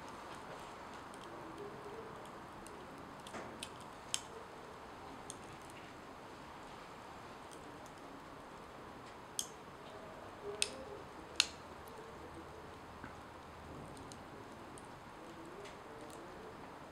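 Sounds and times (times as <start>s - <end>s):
tortilla crackling on metal pan: 0.0s - 4.5s
background hiss: 0.0s - 16.9s.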